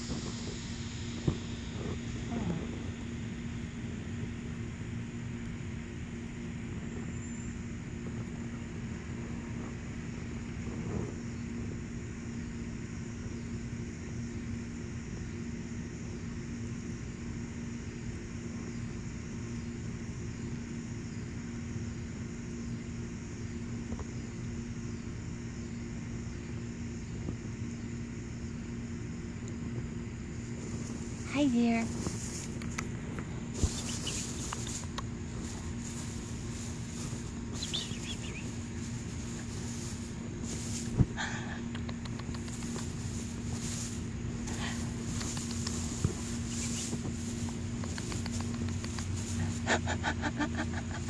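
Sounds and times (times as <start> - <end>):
mechanical hum and rumble: 0.0 - 51.0.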